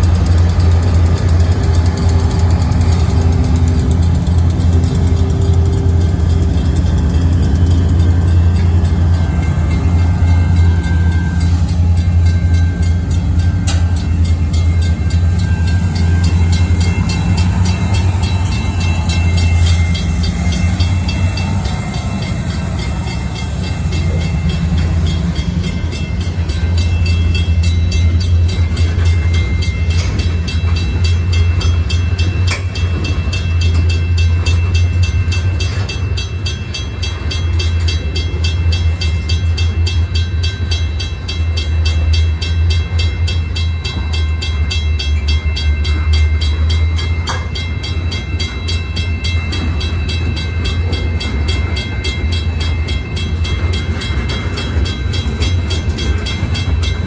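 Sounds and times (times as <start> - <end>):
crossing bell ringing: 0.0 - 57.0
freight train rumbling past: 0.0 - 57.0.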